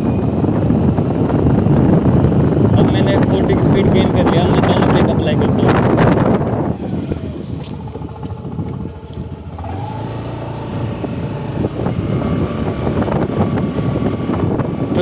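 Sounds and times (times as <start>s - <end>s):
scooter engine and road rumble: 0.0s - 15.0s.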